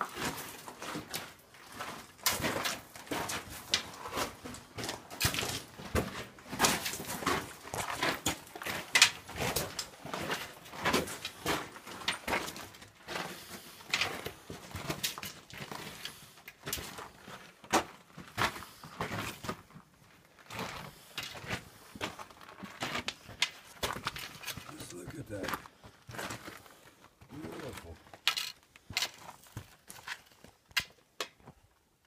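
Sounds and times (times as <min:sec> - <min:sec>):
footsteps on gravel: 0:00.1 - 0:13.7, 0:21.4 - 0:31.5.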